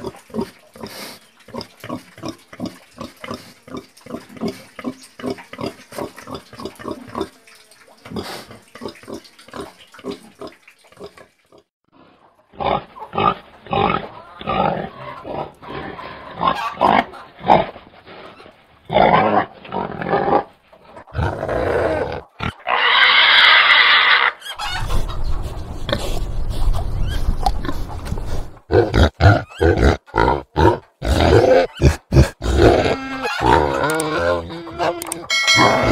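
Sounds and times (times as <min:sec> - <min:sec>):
harsh pig call: 0:21.1 - 0:25.0, 0:28.7 - 0:35.9
pig grunting: 0:28.7 - 0:35.9.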